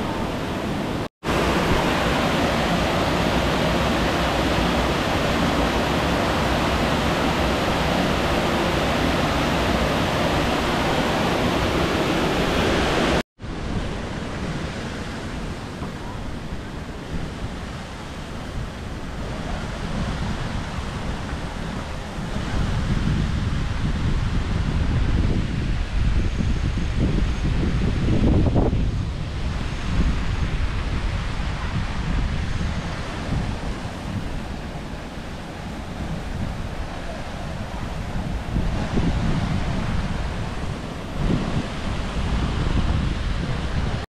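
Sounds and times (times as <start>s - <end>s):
waterfall rushing: 0.0s - 22.6s, 32.9s - 44.0s
wind on microphone: 0.0s - 44.0s.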